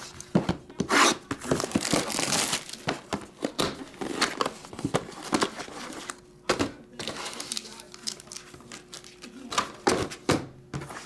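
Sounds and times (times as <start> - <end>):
plastic shrink wrap crinkling: 1.4 - 3.1, 7.0 - 9.3
boxes tapping and knocking: 2.8 - 5.6.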